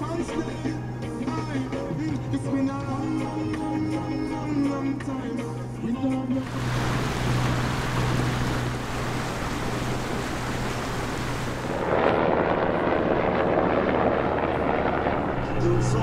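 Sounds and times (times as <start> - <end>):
water rushing: 6.4 - 13.3
low hum: 6.4 - 15.9
helicopter rotor noise: 6.4 - 16.0
rushing wind: 6.4 - 16.0.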